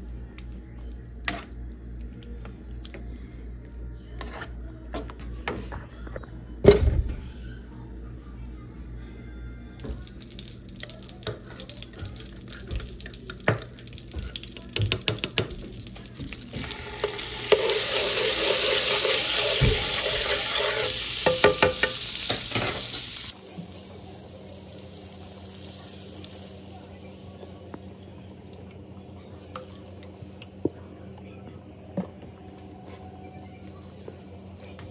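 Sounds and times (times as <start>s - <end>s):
butter and garlic sizzling: 9.9s - 30.3s
spoon scraping pan: 17.0s - 21.7s
spoon knocking against pan: 21.2s - 22.5s.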